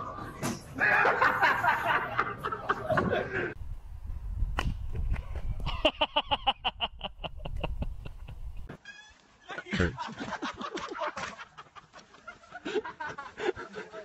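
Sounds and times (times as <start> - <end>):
laughter: 0.8 - 3.6, 5.6 - 8.7, 9.6 - 14.0.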